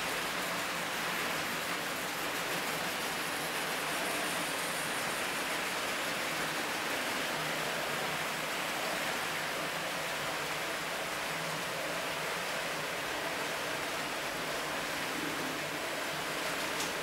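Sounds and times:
model train wheels rolling: 15.9 - 17.0.

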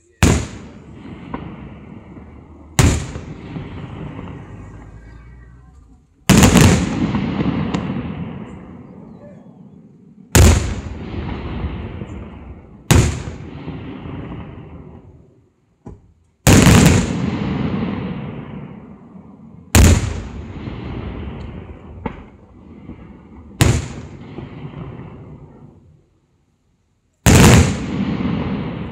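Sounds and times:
sharp firework cracks: 0.0 - 5.0, 6.2 - 8.6, 10.3 - 12.2, 12.8 - 15.0, 15.9 - 18.7, 19.7 - 25.5, 27.2 - 28.9
firework booms with rumbling tail: 0.2 - 5.2, 6.2 - 15.3, 16.0 - 25.8, 27.2 - 28.9.

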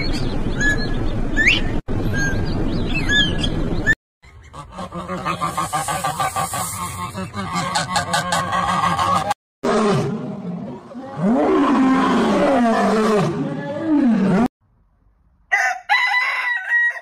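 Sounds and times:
bird chirping: 0.0 - 4.6
ducks quacking: 4.2 - 9.4.

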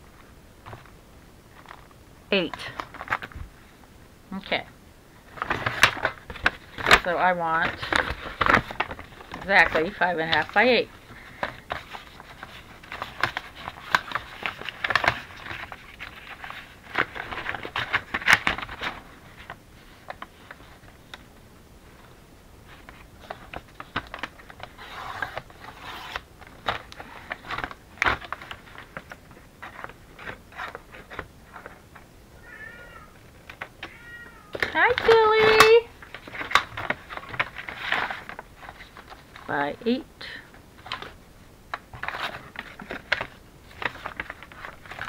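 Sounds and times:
paper bag rustling and crinkling: 5.1 - 21.1, 34.6 - 39.7, 41.8 - 45.0
cat meowing: 32.4 - 33.2, 33.8 - 34.6.

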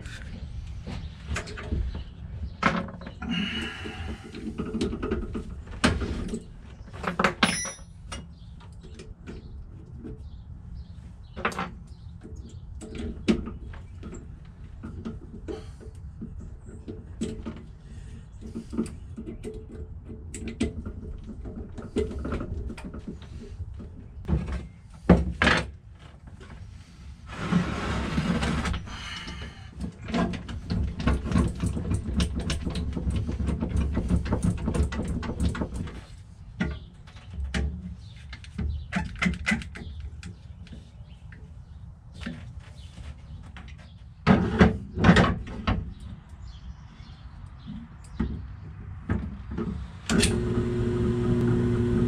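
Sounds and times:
drill press drilling: 50.1 - 52.0
low motor hum: 50.1 - 52.0.

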